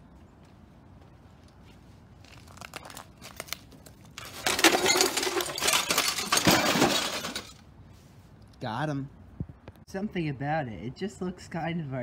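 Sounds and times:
broken glass clinking and rattling: 4.2 - 7.6
crunching glass clatter: 4.2 - 7.6.

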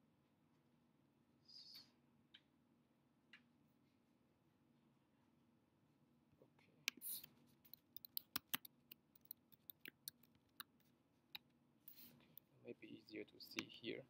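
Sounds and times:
keyboard typing: 6.9 - 10.8.

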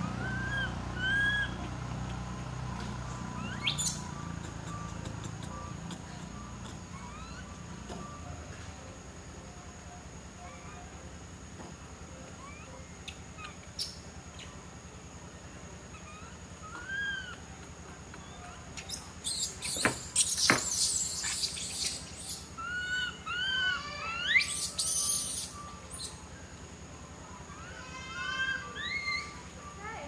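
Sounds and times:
monkey coos: 0.0 - 8.2, 12.3 - 14.0, 15.8 - 26.2, 28.2 - 29.5
monkey harsh squeals: 0.2 - 1.6, 6.9 - 7.6, 12.4 - 12.7, 15.9 - 17.4, 18.2 - 26.2, 28.1 - 29.4.

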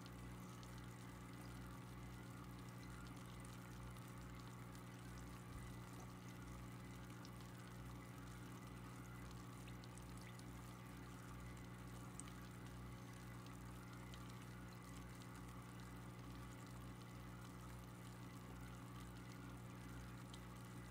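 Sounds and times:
aquarium equipment hum: 0.0 - 20.9.

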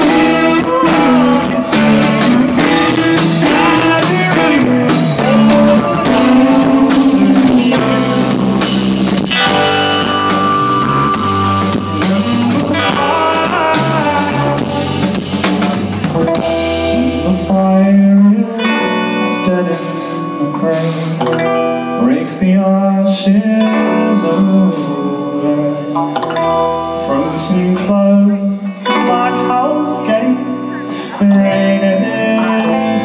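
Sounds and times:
drum kit: 0.0 - 26.2
bass guitar: 0.0 - 33.0
electric guitars: 0.0 - 33.0.

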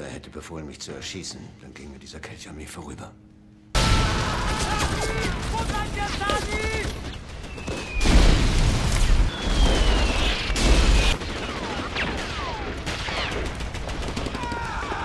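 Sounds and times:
battle noise: 3.8 - 7.0
heavy explosions: 3.8 - 15.0
falling shell whistle: 9.1 - 11.2.

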